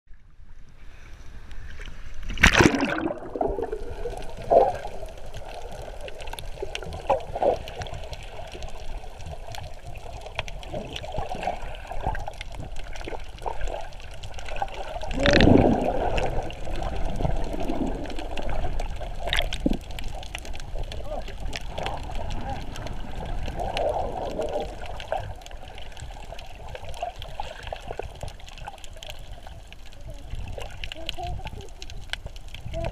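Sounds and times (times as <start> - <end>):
water sloshing and gurgling: 0.1 - 32.9
rush of water: 0.7 - 32.9
sharp splash: 2.2 - 4.8.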